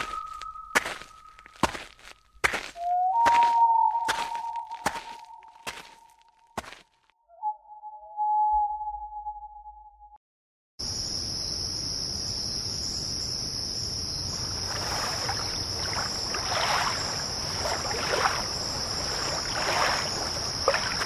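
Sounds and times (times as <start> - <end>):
crickets chirring: 0.0 - 6.0, 10.8 - 21.0
water splashing: 0.0 - 6.0, 14.4 - 21.0.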